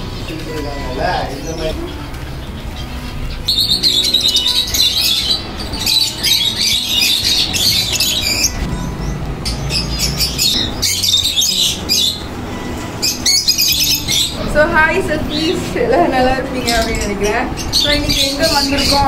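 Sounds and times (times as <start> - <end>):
birds chattering and squawking: 0.0 - 19.0.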